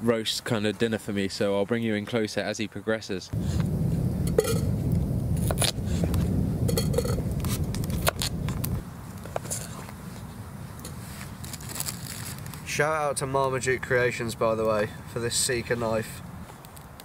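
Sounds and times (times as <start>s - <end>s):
low rumble: 3.4s - 9.2s.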